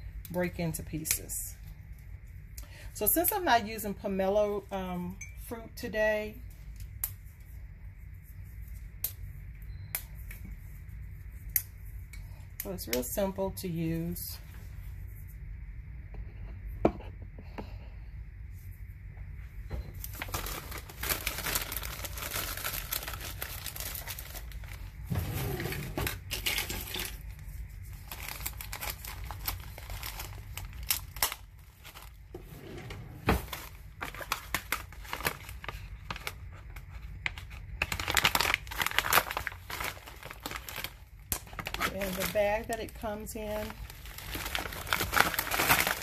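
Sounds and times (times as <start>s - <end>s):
plastic bag crinkling: 20.0s - 25.1s, 26.1s - 32.3s, 33.4s - 36.5s, 37.2s - 46.0s.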